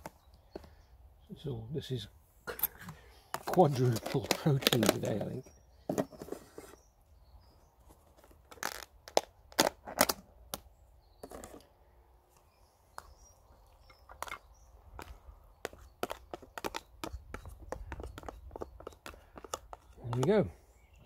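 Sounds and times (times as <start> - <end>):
plastic tub clicking and knocking: 15.7 - 20.4.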